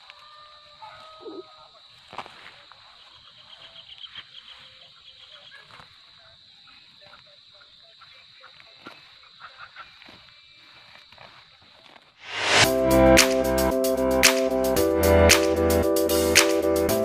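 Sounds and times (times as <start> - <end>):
animal chirps: 3.0 - 10.3
steady high drone: 12.3 - 17.0.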